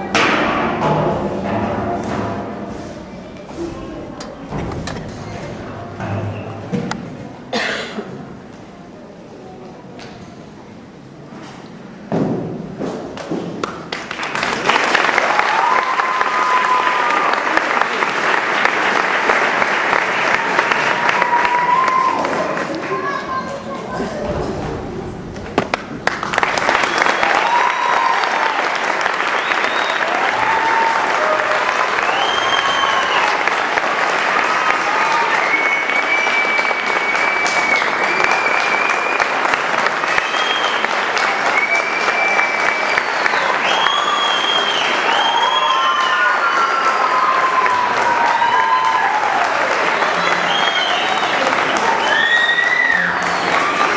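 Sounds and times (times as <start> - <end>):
audience clapping: 13.2 - 23.7, 25.4 - 53.9
crowd cheering: 13.8 - 53.9
high whistle: 29.3 - 30.1, 32.0 - 33.4, 35.3 - 39.4, 40.0 - 40.9, 41.5 - 46.8, 50.4 - 53.8.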